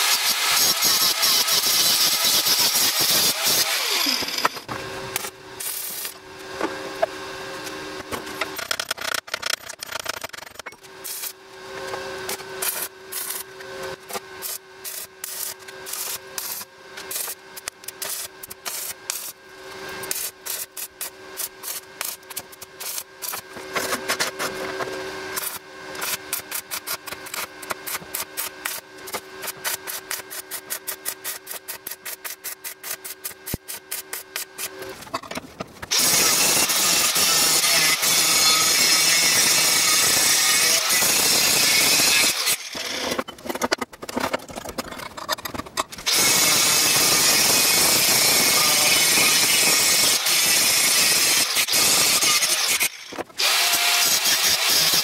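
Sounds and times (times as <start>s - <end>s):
welding arc crackling: 14.4s - 19.4s, 20.0s - 23.4s.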